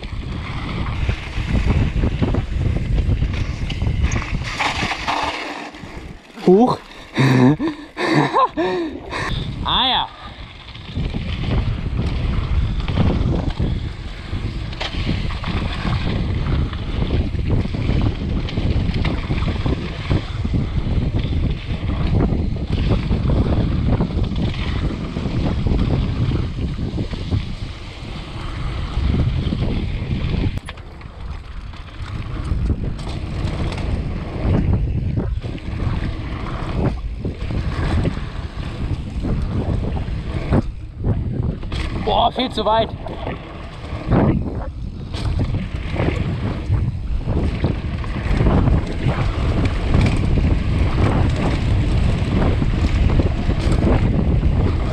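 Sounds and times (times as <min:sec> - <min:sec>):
bike tyres rolling on dirt: 0:00.0 - 0:54.9
wind buffeting microphone: 0:00.0 - 0:54.9
bike knocks and rattles: 0:28.5 - 0:42.3, 0:43.0 - 0:54.9.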